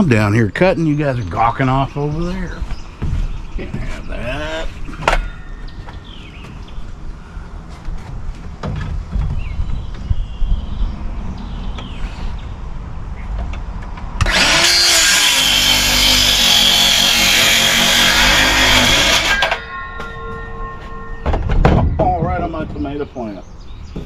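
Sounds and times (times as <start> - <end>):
saw cutting wooden board: 14.2 - 19.6
circular saw whine: 14.2 - 22.9.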